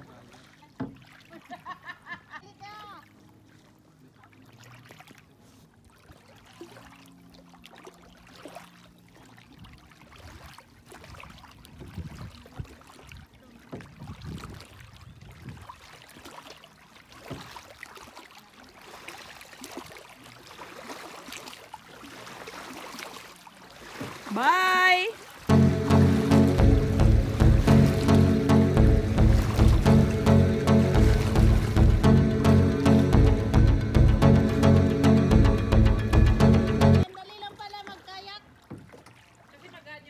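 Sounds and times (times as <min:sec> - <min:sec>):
water lapping at shore: 0:00.0 - 0:32.8, 0:37.0 - 0:40.0
soft low thumps: 0:25.5 - 0:37.0.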